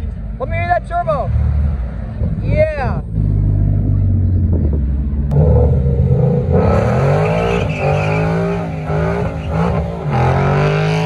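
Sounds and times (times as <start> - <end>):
car engine revving hard: 5.3 - 11.0
tyres squealing on asphalt: 6.6 - 11.0.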